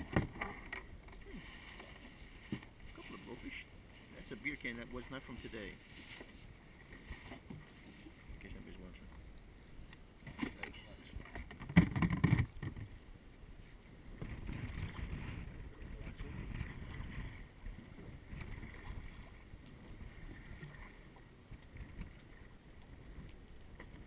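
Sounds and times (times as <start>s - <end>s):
water slapping around boat: 0.0s - 9.2s, 10.2s - 13.0s, 13.8s - 24.0s
wind buffeting microphone: 14.2s - 19.3s.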